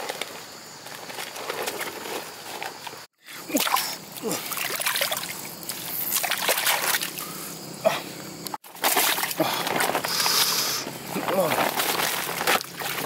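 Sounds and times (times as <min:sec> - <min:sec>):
muddy water splashing: 0:03.4 - 0:07.5, 0:08.6 - 0:13.0.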